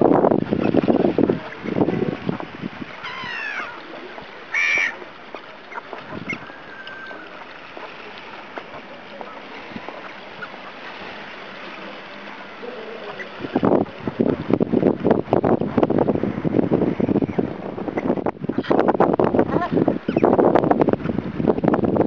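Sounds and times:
wind and sea hiss: 0.0s - 22.0s
gulls and geese calling: 0.6s - 13.7s.

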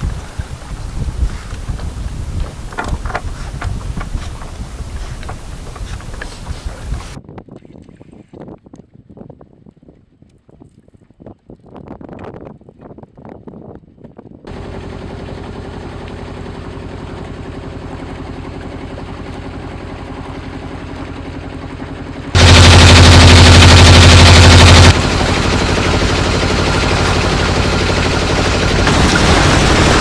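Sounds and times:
boat engine putter: 1.4s - 7.2s, 14.5s - 30.0s.

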